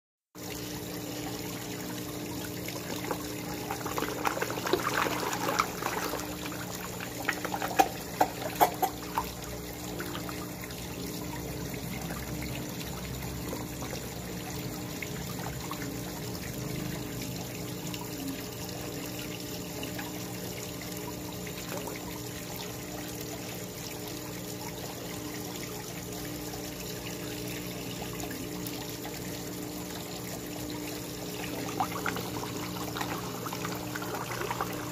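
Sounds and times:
water trickling into pond: 0:00.4 - 0:34.9
sharp knocks and splashes: 0:03.8 - 0:09.0.

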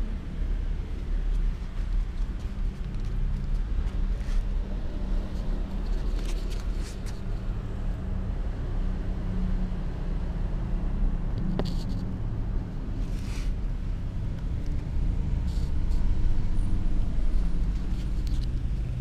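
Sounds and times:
steady low rumble: 0:00.0 - 0:19.0
faint clicks and rustles: 0:00.7 - 0:07.6, 0:11.3 - 0:12.2, 0:12.8 - 0:19.0.

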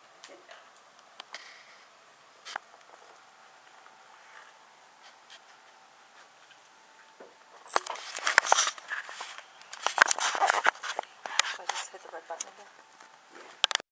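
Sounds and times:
camera handling clicks and rustling: 0:07.7 - 0:11.8.

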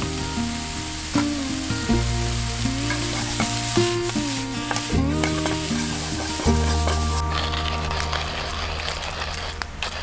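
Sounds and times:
background music: 0:00.0 - 0:10.0
rice sizzling in a frying pan: 0:00.0 - 0:10.0
tongs stirring: 0:02.3 - 0:10.0.

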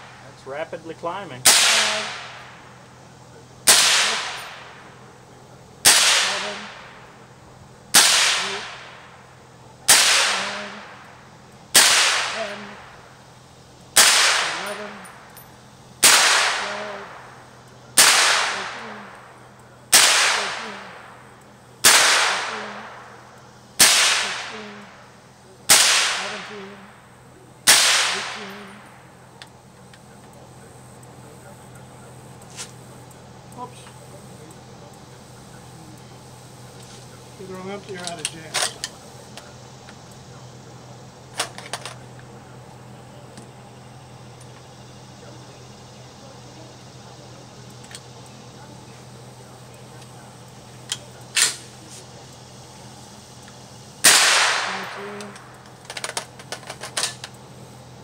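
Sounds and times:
suppressed gunshots with echo: 0:01.4 - 0:02.8, 0:03.7 - 0:05.1, 0:05.8 - 0:07.1, 0:07.9 - 0:09.2, 0:09.9 - 0:11.1, 0:11.7 - 0:13.0, 0:14.0 - 0:15.3, 0:16.0 - 0:17.4, 0:18.0 - 0:23.2, 0:23.8 - 0:25.0, 0:25.7 - 0:26.6, 0:27.6 - 0:29.2, 0:54.0 - 0:55.6.

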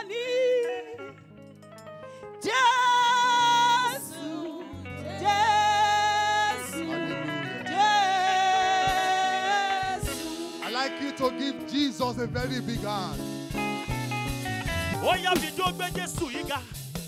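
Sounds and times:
instrumental backing music: 0:00.0 - 0:17.0
woman singing long notes: 0:02.5 - 0:10.6.

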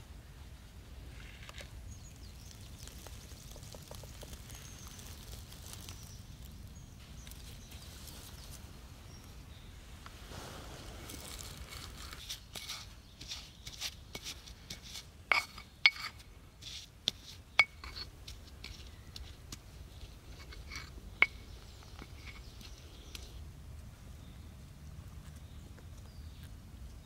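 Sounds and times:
stone clinking on stone: 0:15.3 - 0:16.2, 0:17.6 - 0:18.1, 0:20.4 - 0:22.5.

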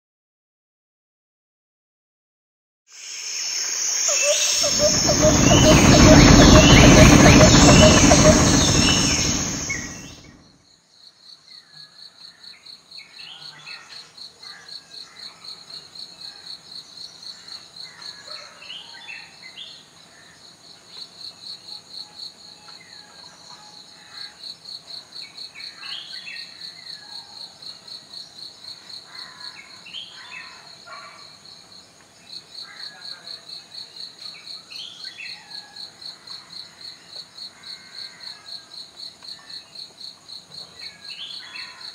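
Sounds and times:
cricket trilling: 0:02.9 - 0:10.3
bird chirps: 0:03.0 - 0:10.4
loud noise: 0:03.0 - 0:10.4.

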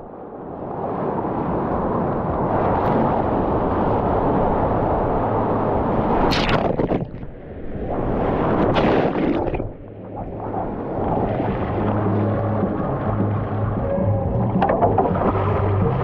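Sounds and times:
water hitting camera: 0:06.2 - 0:07.4, 0:08.5 - 0:11.7.

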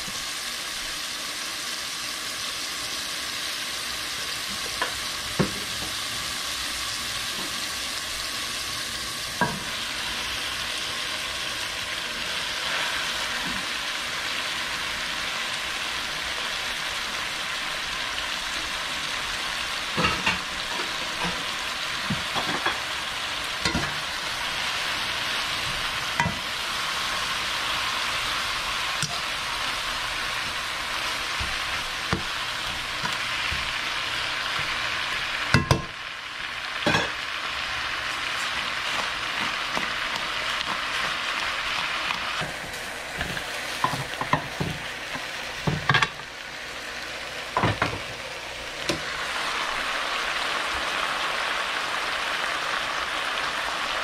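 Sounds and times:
tomatoes sizzling in oil: 0:00.0 - 0:54.0
utensils knocking on pan: 0:04.6 - 0:06.0, 0:09.4 - 0:09.7, 0:19.9 - 0:21.4, 0:22.0 - 0:22.8, 0:23.6 - 0:24.0, 0:26.2 - 0:26.5, 0:31.3 - 0:33.8, 0:35.5 - 0:36.0, 0:36.8 - 0:37.2, 0:43.2 - 0:44.8, 0:45.6 - 0:46.2, 0:47.6 - 0:48.1.

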